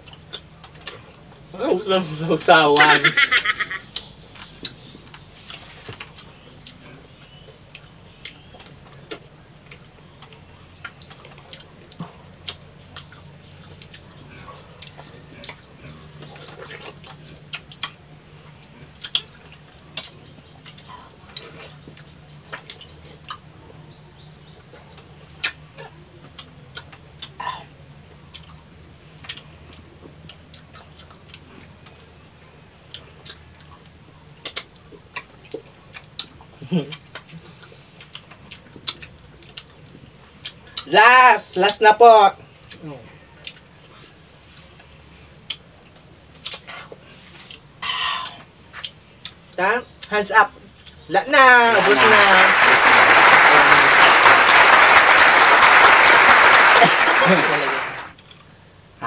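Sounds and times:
mouth noises of eating fruit: 4.0 - 23.4, 32.9 - 39.8, 46.3 - 50.1.

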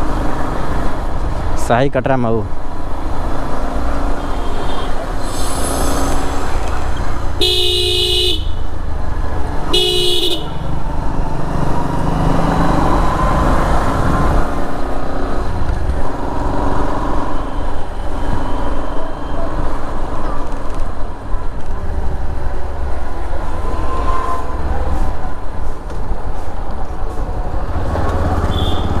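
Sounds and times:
street traffic rumble: 0.0 - 29.0
vehicle horn honking: 7.4 - 8.6, 9.7 - 10.6, 28.4 - 29.0.

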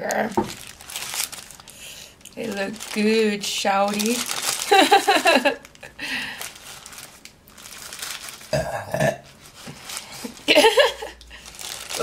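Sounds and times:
paper wrapper crinkling: 0.0 - 8.6, 9.3 - 12.0
person burping: 8.5 - 9.2.

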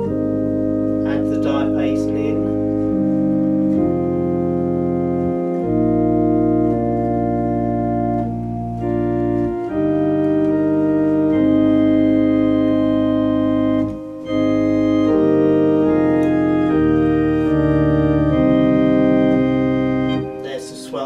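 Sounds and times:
low bass line: 0.0 - 21.0
organ playing sustained chords: 0.0 - 21.0.

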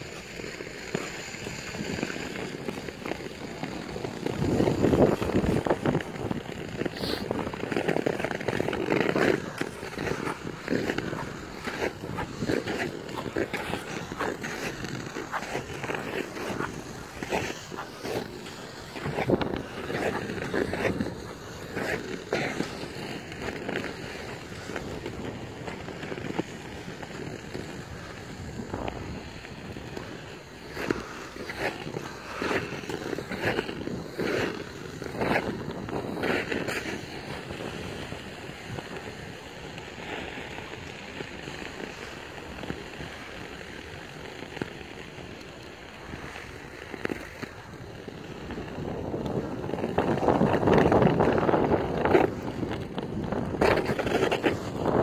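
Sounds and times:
ice skates scraping on ice: 0.0 - 55.0.

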